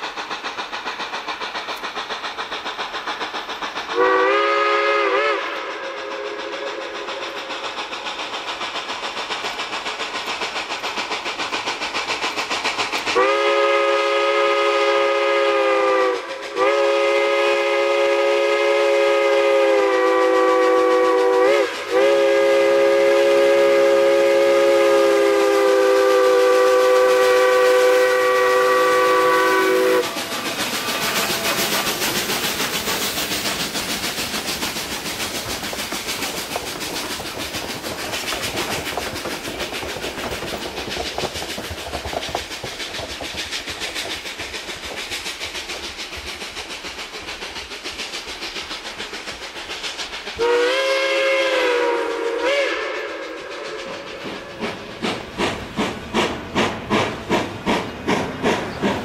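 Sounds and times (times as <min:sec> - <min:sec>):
steady rushing hiss: 0:00.0 - 0:59.0
steam locomotive chime whistle: 0:03.9 - 0:07.0, 0:13.2 - 0:31.8, 0:50.4 - 0:54.5.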